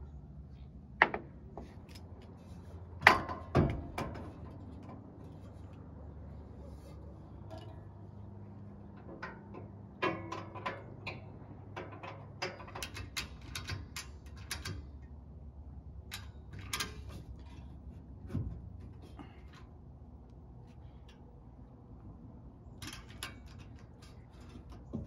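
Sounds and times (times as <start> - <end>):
hands clicking and tapping hardware: 9.0 - 14.9.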